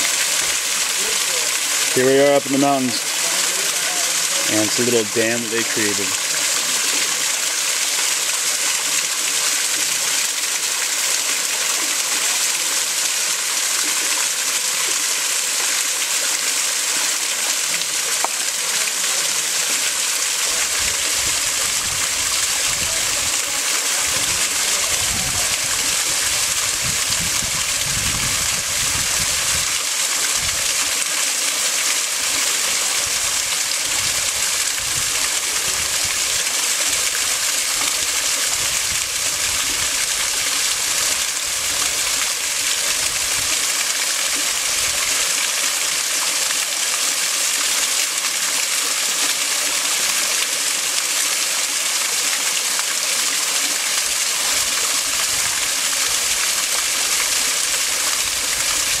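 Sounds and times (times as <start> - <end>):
water rushing over spillway: 0.0 - 59.0.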